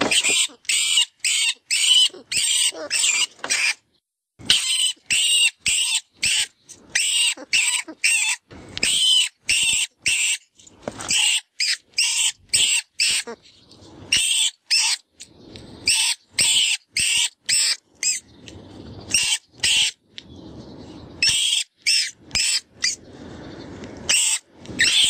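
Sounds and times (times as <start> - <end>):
rodent distress call squeals: 0.0 - 3.8, 4.5 - 10.4, 11.1 - 13.4, 14.1 - 15.0, 15.8 - 18.3, 19.1 - 20.0, 21.2 - 23.0, 24.1 - 25.0.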